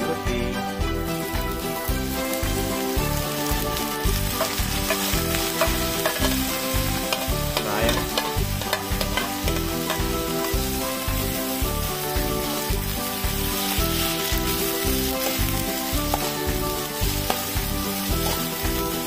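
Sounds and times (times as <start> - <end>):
vegetables sizzling in frying pan: 0.7 - 19.0
spatula scraping and stirring: 4.1 - 18.6
spatula clicking against pan: 4.4 - 10.6.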